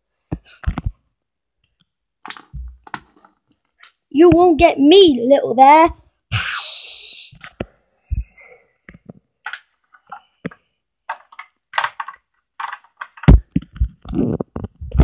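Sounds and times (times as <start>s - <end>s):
clicks and rustles of handling: 0.3s - 1.0s, 1.6s - 4.1s, 8.9s - 15.0s
heavy thumps: 2.4s - 3.0s.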